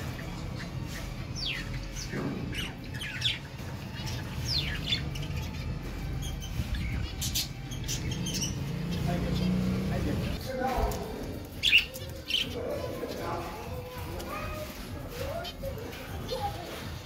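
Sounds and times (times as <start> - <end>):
budgerigars chirping: 0.0 - 10.4, 11.6 - 13.5.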